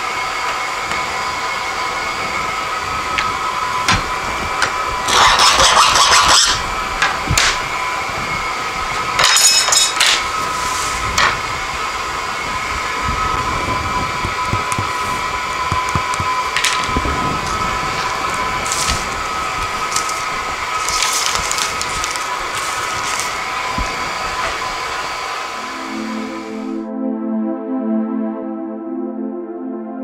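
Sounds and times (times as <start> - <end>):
shop machine hum with whine: 0.0 - 27.0
glass tubing scraping: 5.1 - 6.6.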